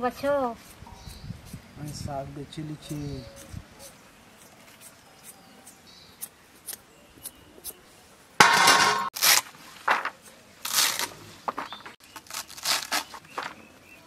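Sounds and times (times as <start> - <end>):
metal bowl clatter: 8.4 - 9.1.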